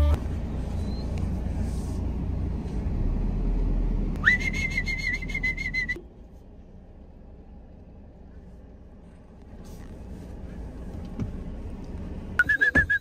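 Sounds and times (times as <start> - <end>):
person whistling: 4.2 - 6.0, 12.4 - 13.0.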